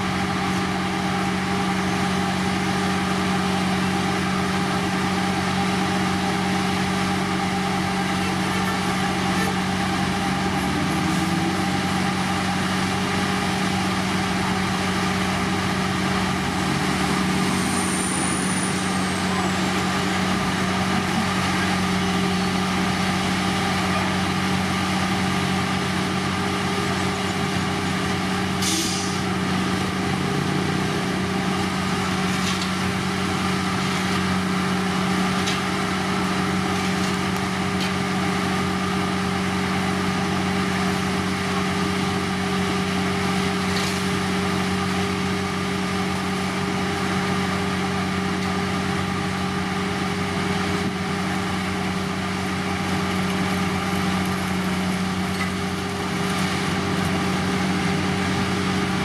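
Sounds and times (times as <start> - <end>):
diesel engine droning: 0.0 - 59.0
brief hiss: 28.6 - 29.2.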